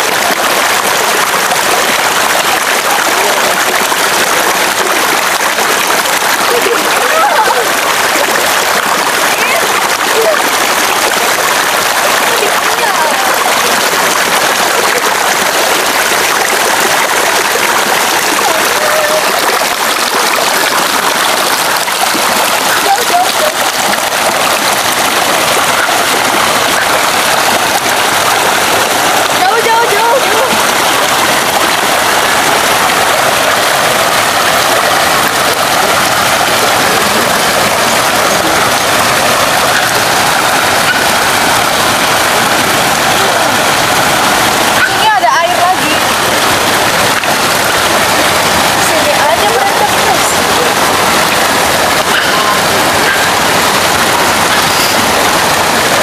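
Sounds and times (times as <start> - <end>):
stream flowing: 0.0 - 56.0
water pouring into a pool: 0.0 - 56.0.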